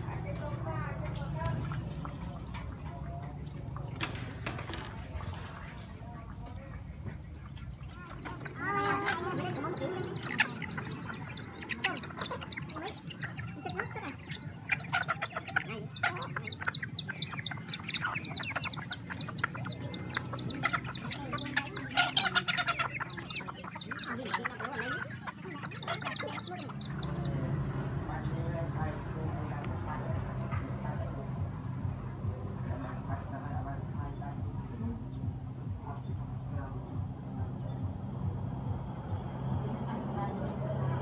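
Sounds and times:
chickens clucking: 0.0s - 41.0s.

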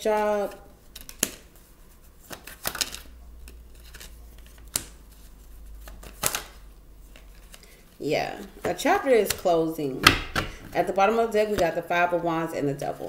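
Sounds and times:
low steady hum: 0.0s - 13.0s
card snaps and slaps: 1.0s - 1.4s, 4.6s - 5.0s, 5.8s - 6.6s.

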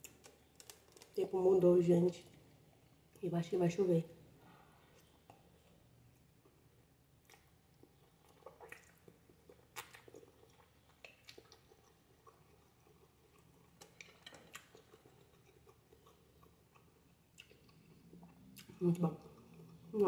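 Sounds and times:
chewing and mouth clicks: 7.2s - 20.0s.

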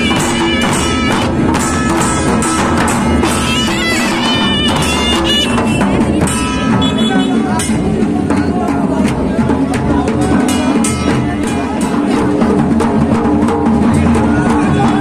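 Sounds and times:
wavering wind instrument tune: 0.0s - 7.7s
drums beating steady rhythm: 0.0s - 15.0s.

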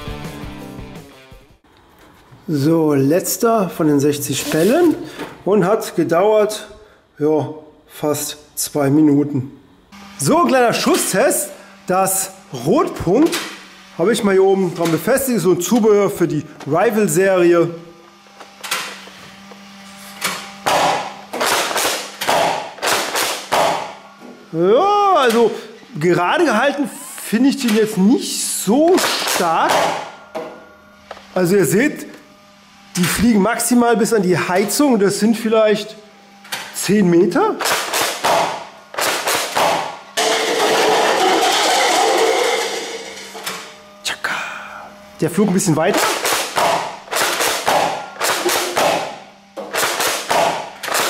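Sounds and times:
toy blaster shots clacking: 20.6s - 23.8s, 37.6s - 43.0s, 45.9s - 51.0s.

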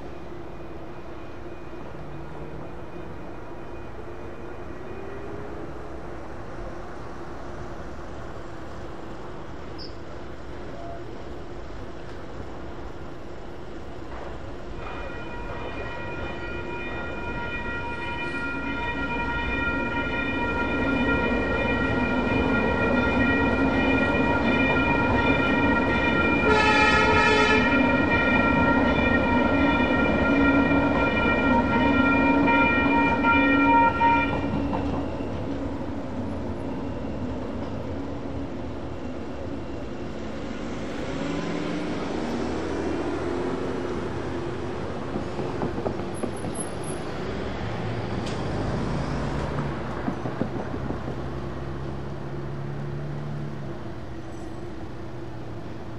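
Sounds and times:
train rumble: 0.0s - 55.9s
railroad crossing bells ringing: 14.7s - 35.8s
train horn blast: 14.8s - 34.8s.

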